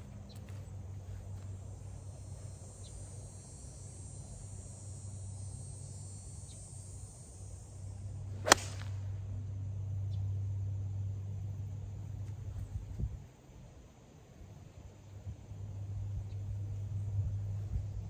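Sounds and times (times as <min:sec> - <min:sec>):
low hum: 0:00.0 - 0:18.0
golf club striking ball: 0:08.4 - 0:09.1.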